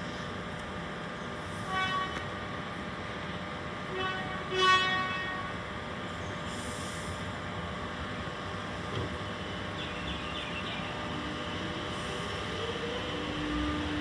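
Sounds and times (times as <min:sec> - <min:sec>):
train humming: 0:00.0 - 0:14.0
train horn toots: 0:01.6 - 0:02.4, 0:03.8 - 0:05.6.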